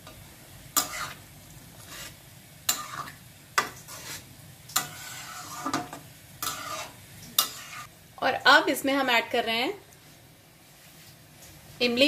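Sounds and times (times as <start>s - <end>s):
ladle scraping pan: 0.8s - 1.2s, 1.8s - 7.9s.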